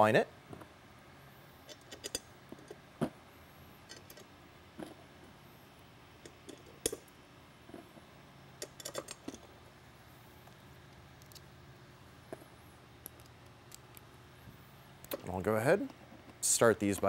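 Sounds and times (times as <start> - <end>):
metal screws clicking and tapping: 1.7 - 2.8, 3.9 - 4.3, 6.2 - 7.0, 8.6 - 9.4.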